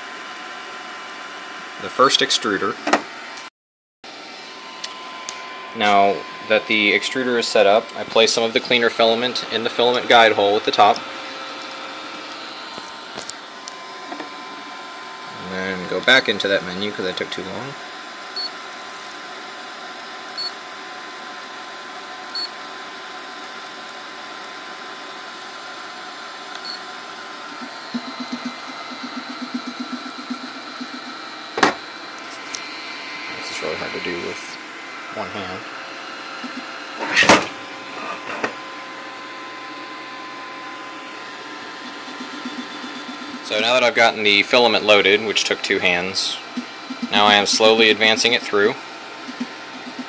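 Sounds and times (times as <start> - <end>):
cooling fans whirring: 0.0 - 3.5, 4.1 - 50.0
steady background hum: 4.1 - 50.0
short high-pitched beeps: 27.5 - 31.2, 41.9 - 43.4, 46.9 - 48.6.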